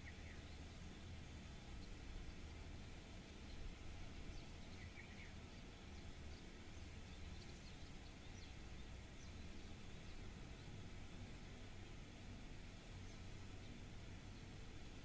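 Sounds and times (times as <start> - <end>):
faint high bird chirps: 0.0 - 0.7, 4.3 - 8.6.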